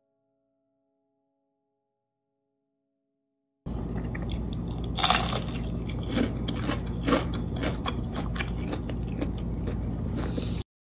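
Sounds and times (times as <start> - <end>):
crunchy chewing: 3.8 - 10.6
crunch of biting fried fish: 3.9 - 10.5.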